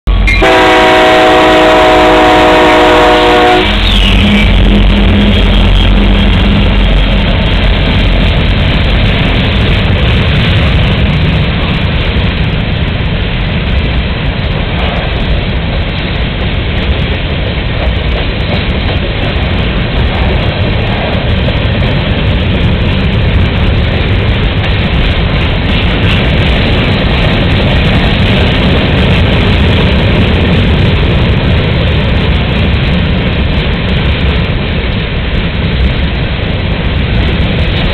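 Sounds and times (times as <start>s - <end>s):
diesel engines rumbling: 0.1s - 37.9s
train cars rolling: 0.1s - 37.9s
locomotive air horn: 0.2s - 4.5s.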